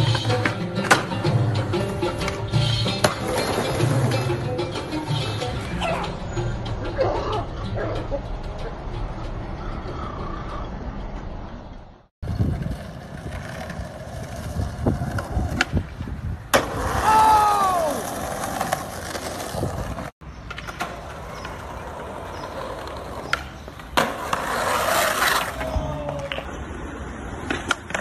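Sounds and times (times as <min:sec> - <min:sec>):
skateboard wheels rolling on concrete: 0:00.0 - 0:06.4, 0:10.3 - 0:28.0
skateboard clacks: 0:16.5 - 0:28.0
person shouting: 0:17.0 - 0:18.2, 0:25.6 - 0:26.5.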